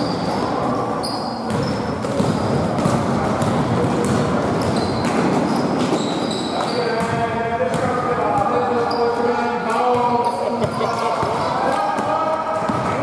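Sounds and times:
shoe squeaks: 0:00.0 - 0:02.6, 0:04.6 - 0:07.0, 0:08.8 - 0:09.2
court noise din: 0:00.0 - 0:13.0
basketball bouncing on floor: 0:01.5 - 0:05.3, 0:12.6 - 0:13.0.

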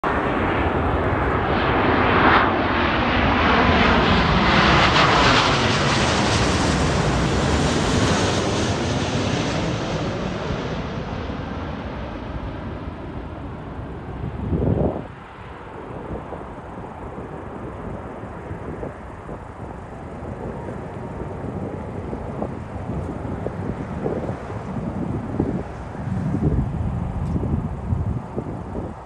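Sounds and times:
jet airliner passing overhead: 0:00.0 - 0:29.0.

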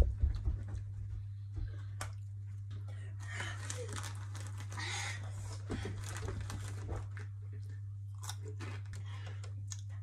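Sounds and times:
steady low hum: 0:00.0 - 0:10.0
chewing crunchy chips: 0:08.1 - 0:10.0.

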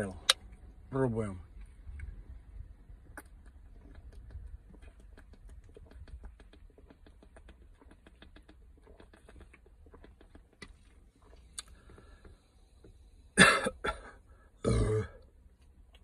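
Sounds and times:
person gulping soda: 0:03.0 - 0:12.2.

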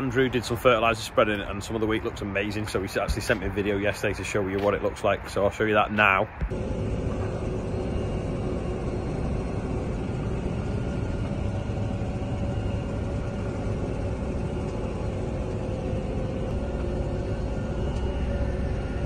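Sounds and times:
tractor engine running: 0:06.4 - 0:19.0.

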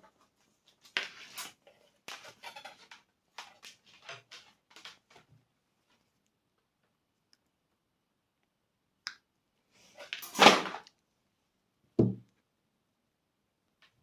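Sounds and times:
wiring rustling and clicking: 0:00.0 - 0:07.5.

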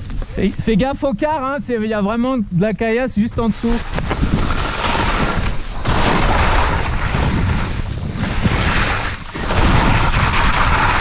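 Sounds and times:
wind buffeting microphone: 0:03.0 - 0:11.0
skis scraping on crusty snow: 0:03.1 - 0:11.0.

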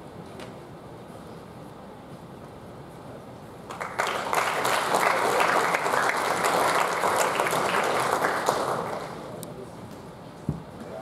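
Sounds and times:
crowd applauding: 0:03.7 - 0:09.4.

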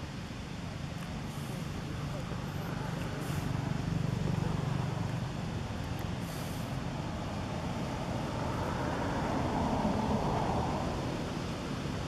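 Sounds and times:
vehicle engine passing by: 0:06.2 - 0:12.0.

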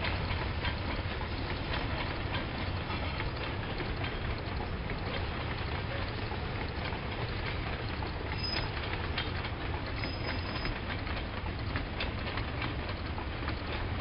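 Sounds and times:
train rumbling: 0:00.0 - 0:14.0
wheels clicking over rails: 0:00.0 - 0:14.0
faint high squeals: 0:08.4 - 0:08.7.

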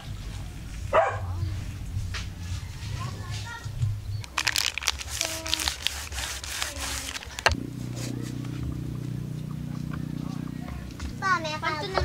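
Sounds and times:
plastic crinkling: 0:04.2 - 0:07.6
knife sawing through plastic wrapper: 0:04.2 - 0:08.1
steady low hum: 0:06.1 - 0:12.0.

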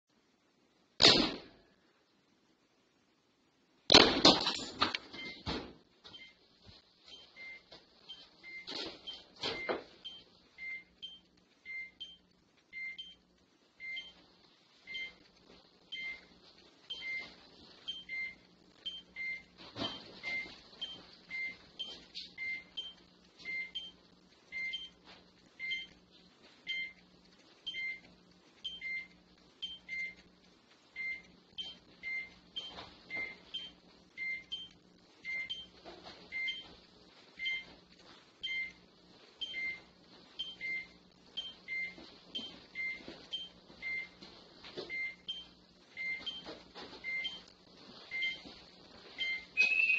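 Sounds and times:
security alarm beeping: 0:06.1 - 0:06.4, 0:07.1 - 0:13.2, 0:13.8 - 0:14.2, 0:14.9 - 0:15.2, 0:15.9 - 0:17.3, 0:17.9 - 0:25.0, 0:25.6 - 0:26.0, 0:26.6 - 0:27.0, 0:27.6 - 0:30.2, 0:31.0 - 0:35.7, 0:36.3 - 0:36.7, 0:37.4 - 0:37.7, 0:38.4 - 0:38.8, 0:39.4 - 0:44.2, 0:44.9 - 0:47.5, 0:48.1 - 0:48.5, 0:49.2 - 0:49.9.

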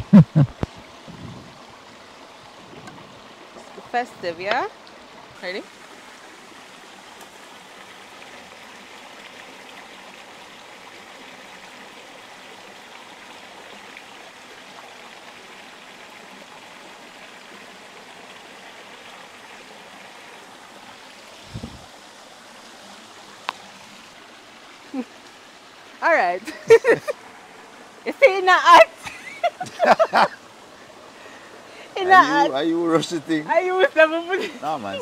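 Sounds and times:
river rushing over rocks: 0:20.1 - 0:35.0.

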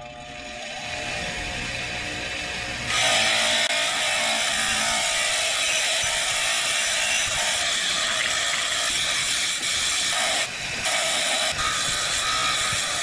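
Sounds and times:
bench grinder grinding metal: 0:00.0 - 0:13.0.

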